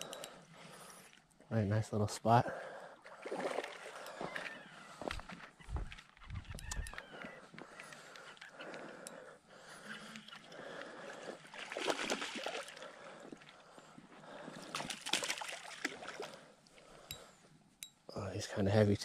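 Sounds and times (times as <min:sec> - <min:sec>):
fish splashing at the surface: 0:11.5 - 0:13.0, 0:14.6 - 0:16.4.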